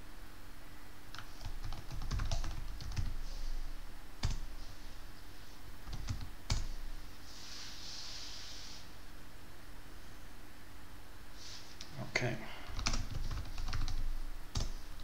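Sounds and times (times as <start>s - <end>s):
typing on computer keyboard: 1.1s - 3.2s, 5.8s - 6.7s, 12.7s - 14.8s.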